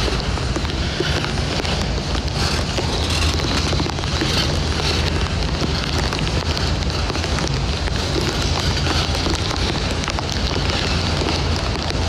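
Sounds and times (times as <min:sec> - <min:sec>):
rain falling: 0:00.0 - 0:12.0
wind rumbling on microphone: 0:00.0 - 0:12.0.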